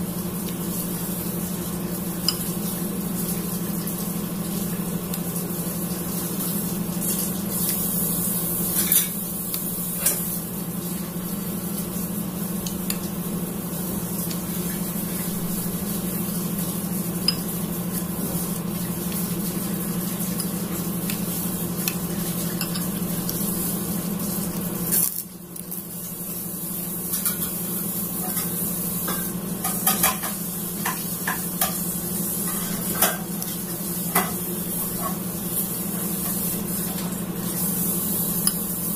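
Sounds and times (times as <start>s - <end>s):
metal spoon stirring in bowl: 21.8s - 23.1s.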